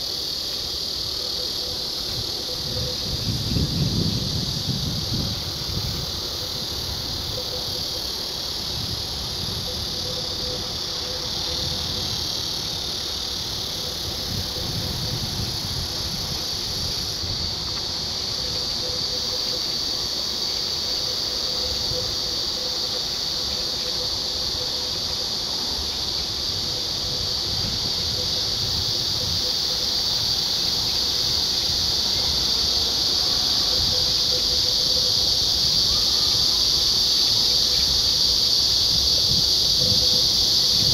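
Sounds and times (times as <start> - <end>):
insects chorus: 0.0 - 40.9.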